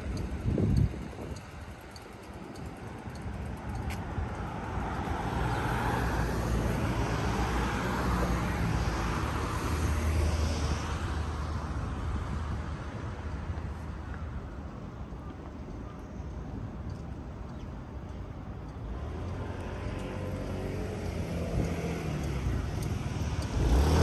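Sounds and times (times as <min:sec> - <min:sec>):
road traffic passing: 0:00.0 - 0:15.0, 0:17.8 - 0:24.0.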